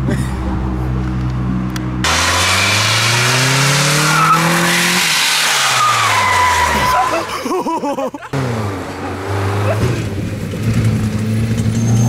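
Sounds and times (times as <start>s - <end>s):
car engine revving: 0.6s - 7.3s, 8.3s - 12.0s
tyres squealing: 2.6s - 7.3s.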